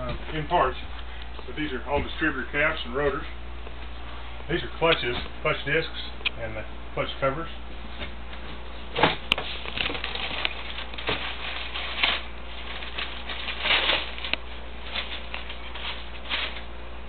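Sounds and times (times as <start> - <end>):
steady low hum: 0.0 - 17.0
cardboard boxes rustling and scraping: 7.9 - 16.7.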